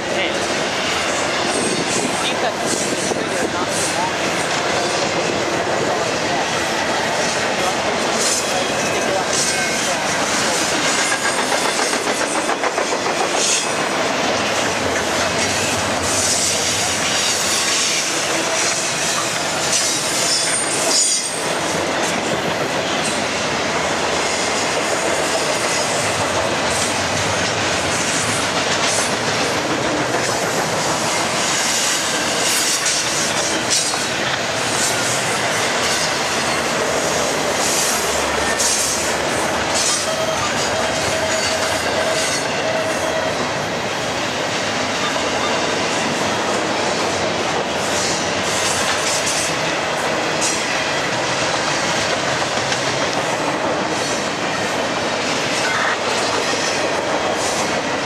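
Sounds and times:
freight train rumble and rattle: 0:00.0 - 0:58.0
high wheel squeal: 0:15.4 - 0:21.5, 0:39.7 - 0:43.4.

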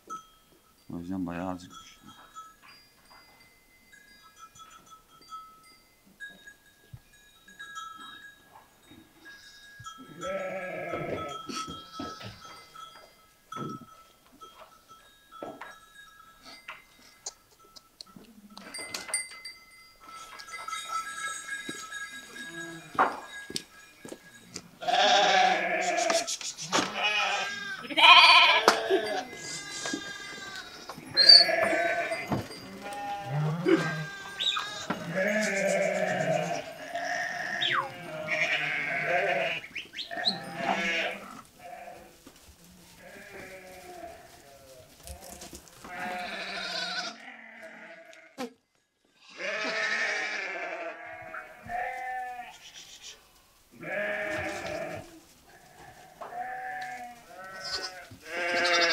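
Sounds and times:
sheep bleating: 0:10.1 - 0:12.4, 0:24.8 - 0:42.1, 0:42.9 - 0:48.5, 0:49.2 - 0:52.9, 0:53.8 - 0:58.9.

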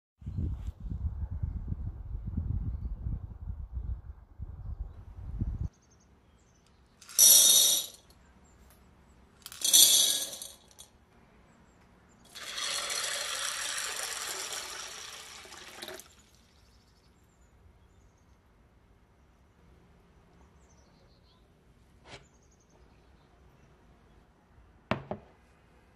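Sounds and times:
chickpeas rattling into glass bowl: 0:07.0 - 0:08.1, 0:09.4 - 0:10.8, 0:12.3 - 0:16.5
water pouring: 0:12.3 - 0:16.7.

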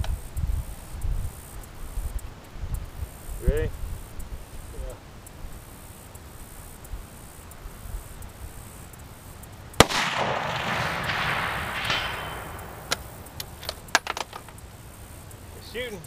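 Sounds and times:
gunshot echo: 0:09.8 - 0:13.8
rifle shot: 0:09.8 - 0:14.2.

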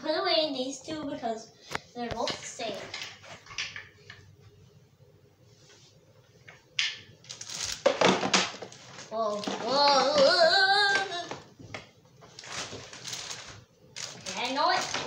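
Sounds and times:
child vocalizing: 0:09.1 - 0:11.4.

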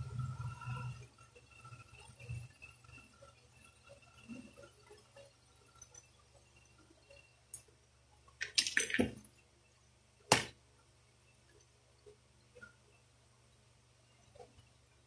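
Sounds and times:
air pistol parts clattering: 0:08.4 - 0:09.2
sharp click: 0:10.3 - 0:10.5.

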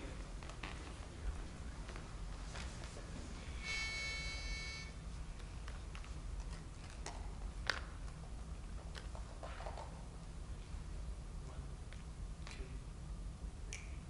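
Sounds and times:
low room hum: 0:00.0 - 0:14.0
pitch pipe note: 0:03.6 - 0:05.0.

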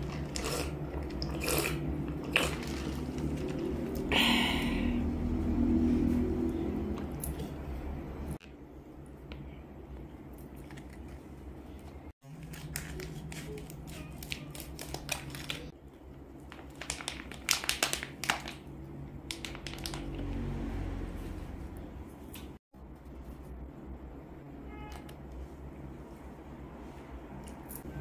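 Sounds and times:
plastic packets crinkling: 0:12.3 - 0:15.7, 0:16.5 - 0:18.7, 0:19.3 - 0:20.2.

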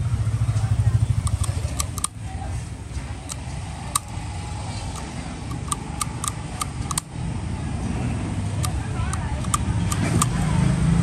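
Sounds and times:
lighter metal clicks: 0:01.2 - 0:02.2.

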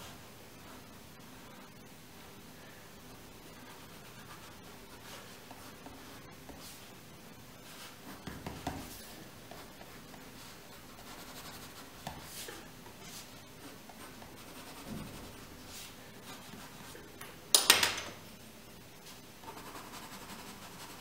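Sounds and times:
pencil scratching on paper: 0:07.6 - 0:17.0, 0:19.4 - 0:21.0.

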